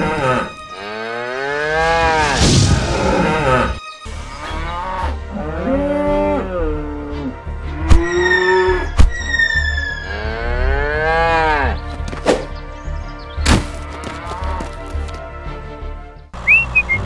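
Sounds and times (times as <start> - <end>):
cattle mooing: 10.0 - 11.8.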